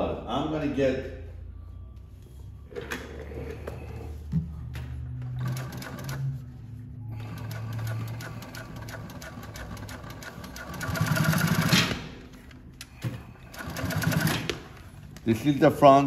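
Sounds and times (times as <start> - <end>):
sewing machine stitching: 5.3 - 6.4, 7.1 - 12.0, 13.4 - 14.8.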